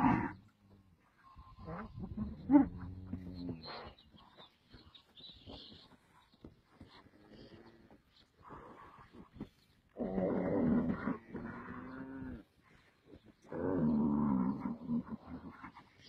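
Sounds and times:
cattle bellowing: 0.0s - 0.4s.

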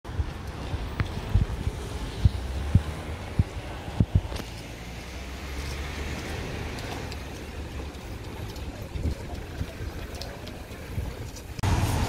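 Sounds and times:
wind on microphone: 0.1s - 4.6s
footsteps on pavement: 0.1s - 8.4s
distant traffic: 0.1s - 12.0s.

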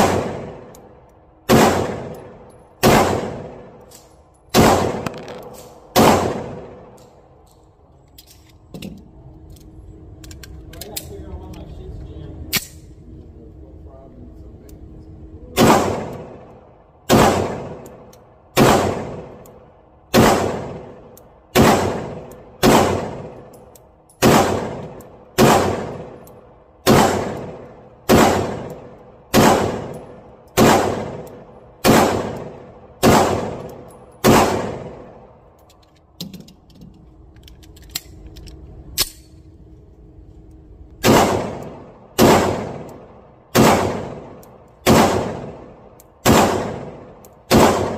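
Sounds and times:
pistol shots echoing indoors: 0.0s - 7.1s, 15.5s - 35.5s, 41.0s - 47.9s.

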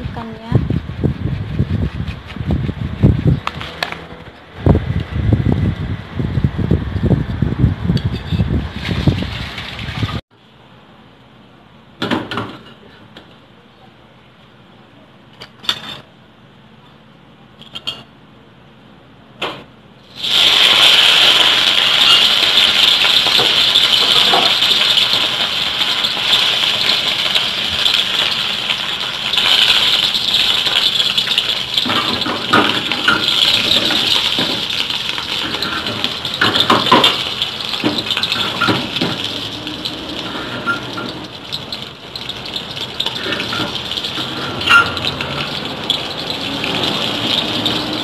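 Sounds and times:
fish sizzling in hot oil: 20.1s - 48.0s.

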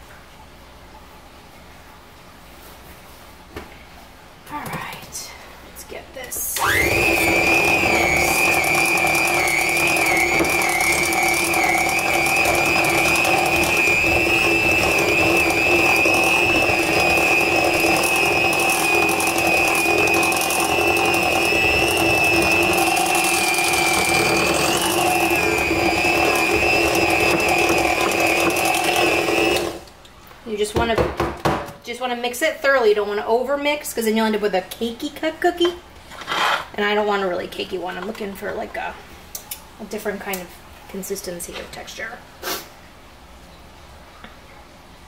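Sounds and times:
electric hand mixer whining: 6.6s - 29.9s.

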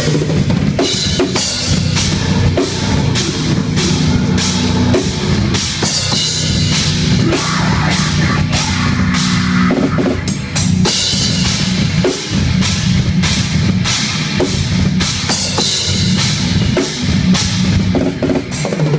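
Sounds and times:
distorted guitars and bass: 0.0s - 18.6s
bass drum: 0.6s - 15.3s.

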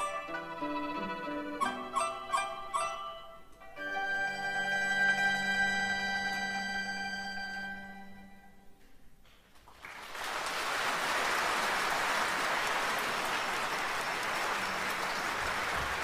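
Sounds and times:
music: 0.0s - 9.1s
audience applause: 9.6s - 16.0s.

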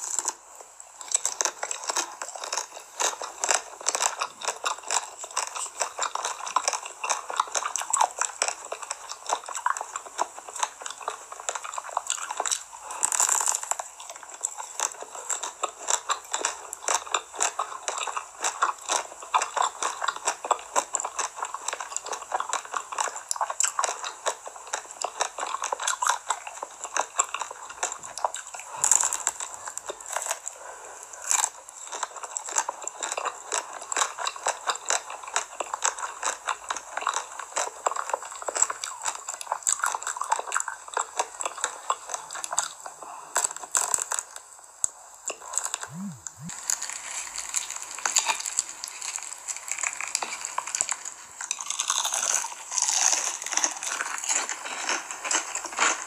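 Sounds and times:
fried shrimp crunching: 0.0s - 56.0s
ice cream shell crunching: 45.6s - 56.0s.

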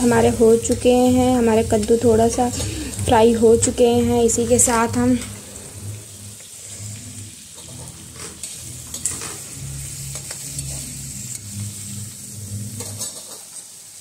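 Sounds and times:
vegetables sizzling in oil: 0.0s - 14.0s
spatula scraping a pan: 6.6s - 11.5s.

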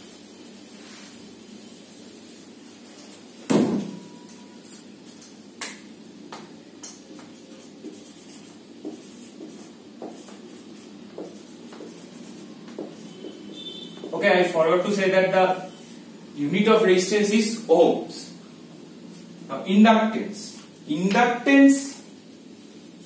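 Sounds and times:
marker writing on whiteboard: 6.4s - 15.9s.

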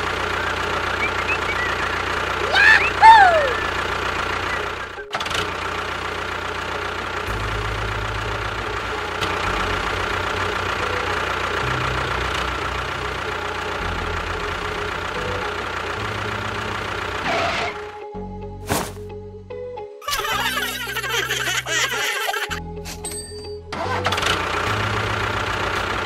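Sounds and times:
tractor engine idling: 0.0s - 18.0s, 20.4s - 26.0s.

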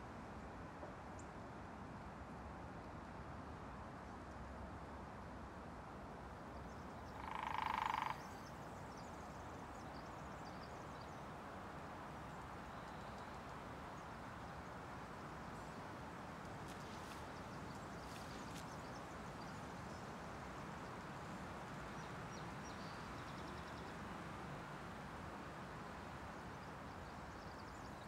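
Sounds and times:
night forest ambience hiss: 5.1s - 28.0s
frog call: 7.1s - 8.6s
faint light ticks: 12.8s - 13.6s.

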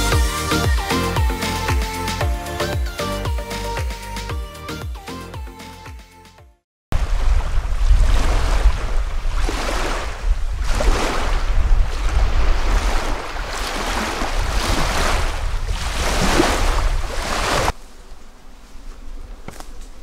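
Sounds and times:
waves lapping on shore: 7.0s - 17.8s
wind rumbling on microphone: 7.0s - 17.8s.

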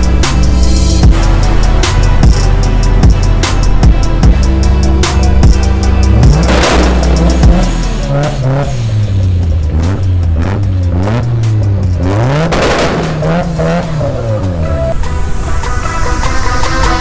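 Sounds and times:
car engines revving hard: 3.6s - 15.2s.

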